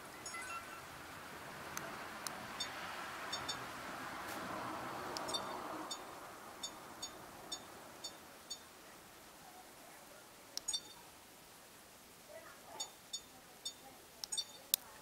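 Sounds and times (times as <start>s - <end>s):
high electronic beeps: 0.0s - 0.9s, 2.6s - 3.6s, 5.2s - 8.7s, 10.6s - 11.0s, 12.8s - 14.7s.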